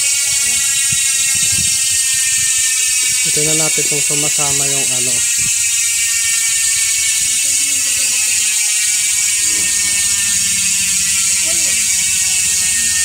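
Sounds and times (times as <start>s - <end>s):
bicycle freehub ratcheting buzz: 0.0s - 13.0s.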